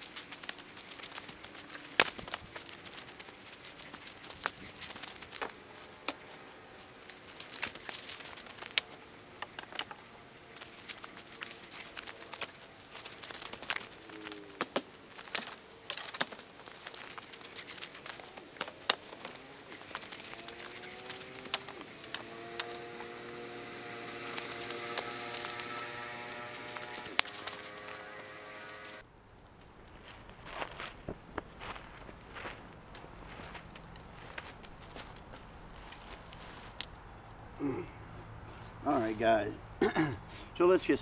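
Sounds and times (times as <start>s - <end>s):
dry sticks cracking and knocking: 0.0s - 29.0s
footsteps crunching through dry leaves: 0.0s - 29.0s, 29.9s - 36.9s.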